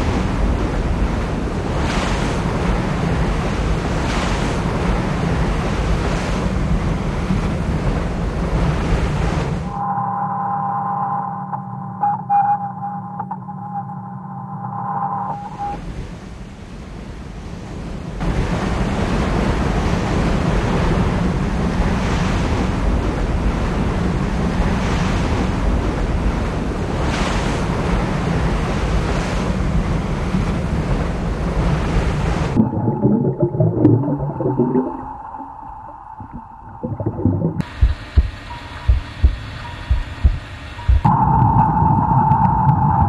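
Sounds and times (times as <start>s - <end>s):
low bubbling: 32.6s - 38.3s
steady hum: 32.6s - 43.0s.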